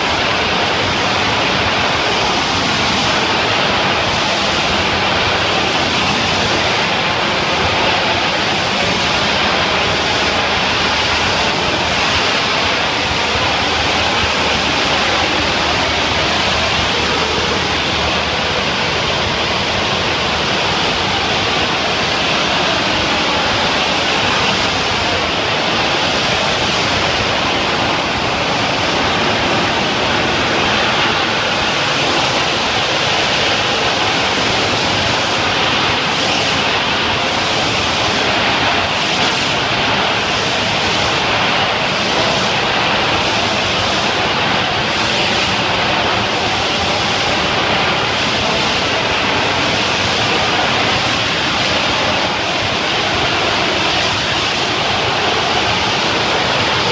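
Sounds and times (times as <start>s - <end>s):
pressure washer spraying: 30.4s - 56.9s.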